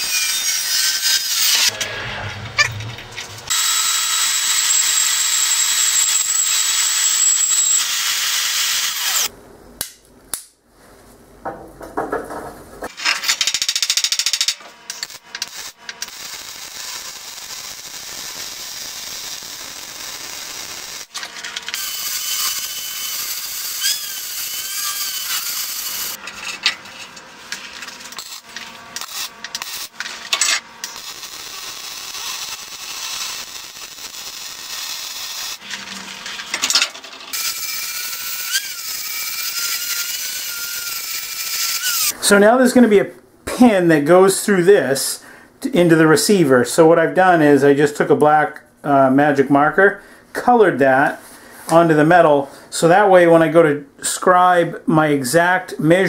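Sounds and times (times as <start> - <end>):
welder arc buzzing: 0.0 - 1.8, 2.6 - 9.3, 12.9 - 42.2
band saw cutting steel: 0.0 - 9.3, 14.0 - 42.2.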